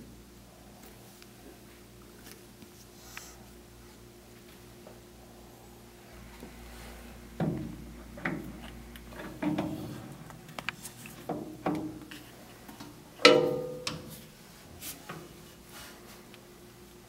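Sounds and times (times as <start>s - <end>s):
metal knocks and clunks: 9.2s - 10.0s, 13.2s - 14.1s
ringing clank of steel on steel: 13.3s - 14.0s.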